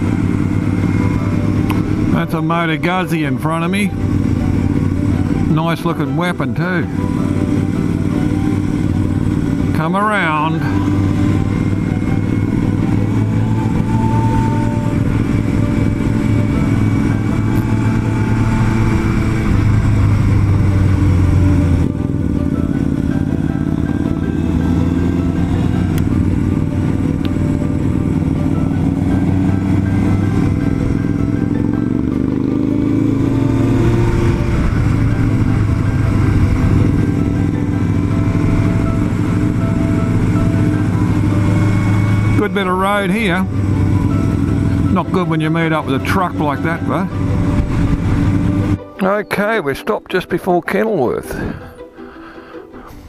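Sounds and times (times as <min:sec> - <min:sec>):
motorcycle engine running: 0:00.0 - 0:49.6.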